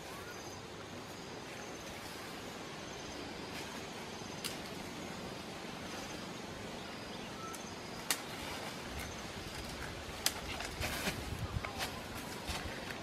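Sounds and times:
tree leaves and branches rustling: 0.0s - 13.0s
twig snapping: 9.6s - 10.8s.

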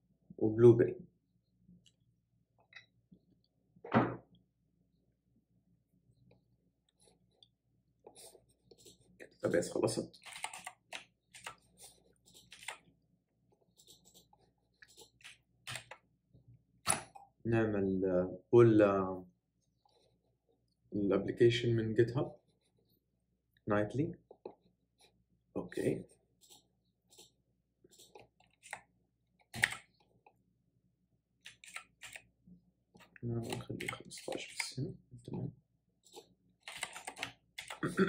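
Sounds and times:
computer keyboard keystrokes: 29.6s - 29.8s.

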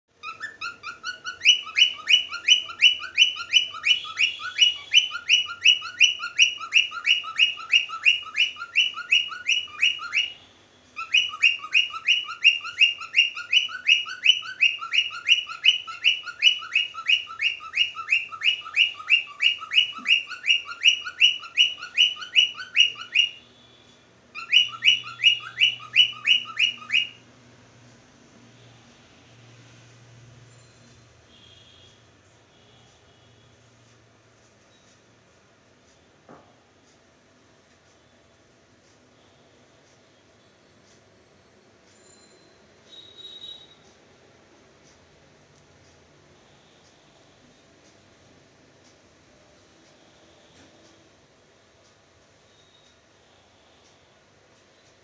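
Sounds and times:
cockatiel chirping: 0.2s - 10.4s, 11.0s - 23.4s, 24.3s - 27.2s.

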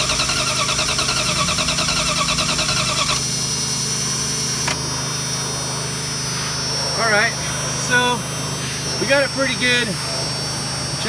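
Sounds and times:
starter motor cranking engine: 0.0s - 6.0s
steady hum: 0.0s - 11.0s.

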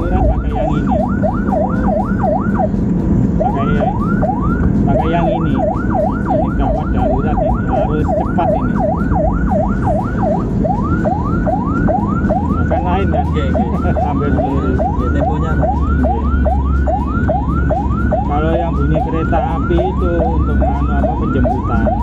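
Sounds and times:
ambulance siren yelping: 0.0s - 22.0s
engine and road rumble: 0.0s - 22.0s.

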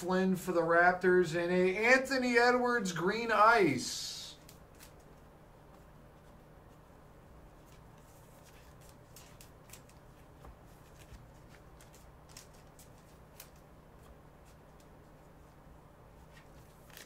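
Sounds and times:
cards clicking and rustling: 4.4s - 5.2s, 7.6s - 15.0s, 16.2s - 17.0s.

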